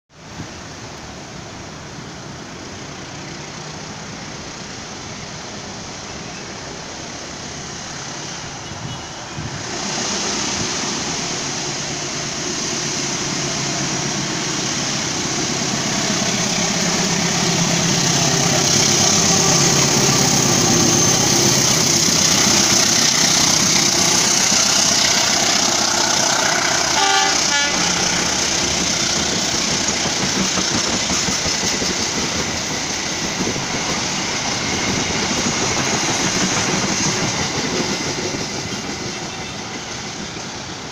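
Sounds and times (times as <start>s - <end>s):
train coaches rolling by: 0.1s - 40.9s
diesel locomotive passing: 0.2s - 40.9s
train horn toot: 26.6s - 28.4s.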